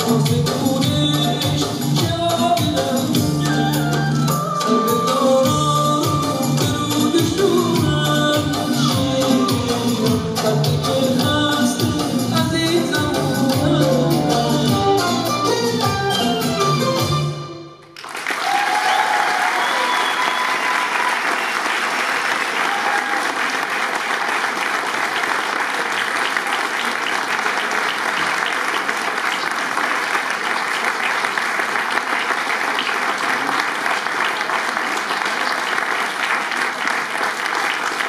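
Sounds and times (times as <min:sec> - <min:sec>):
dance music: 0:00.0 - 0:17.7
audience applauding: 0:17.8 - 0:38.0.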